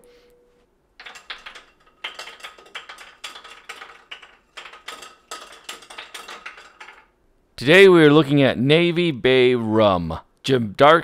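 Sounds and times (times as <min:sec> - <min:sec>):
hands handling small objects: 0:01.0 - 0:07.1.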